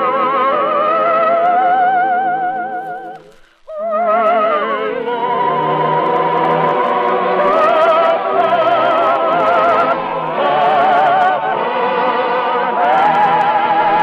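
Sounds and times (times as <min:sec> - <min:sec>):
operatic soprano singing: 0:03.7 - 0:14.0
orchestra: 0:03.7 - 0:14.0.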